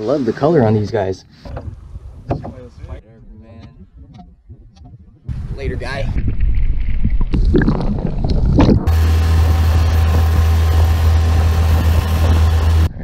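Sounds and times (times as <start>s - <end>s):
seawater sloshing and gurgling: 5.2s - 10.6s
boat motor humming with hiss: 8.9s - 12.9s.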